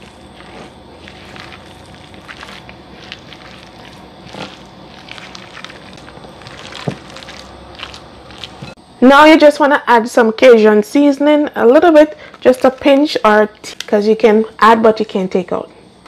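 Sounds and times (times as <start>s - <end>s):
spatula scraping glass bowl: 0.0s - 8.8s
spatula squishing stuffing: 0.0s - 8.8s.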